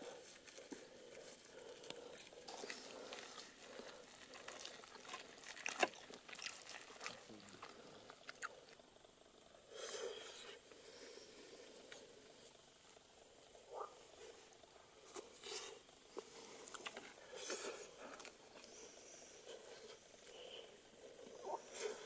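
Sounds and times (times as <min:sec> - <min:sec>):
night insects chorus: 0:00.0 - 0:22.0
chewing: 0:00.4 - 0:08.8.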